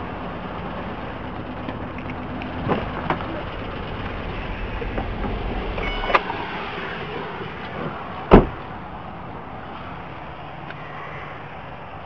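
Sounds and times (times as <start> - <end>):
brief electronic beep: 5.8 - 6.4
car door slamming: 7.8 - 8.7.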